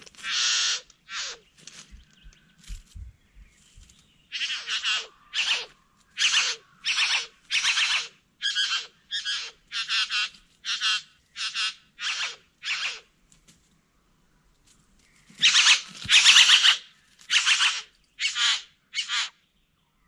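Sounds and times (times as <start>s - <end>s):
bird harsh buzzing calls: 0.2s - 2.4s, 4.3s - 13.1s.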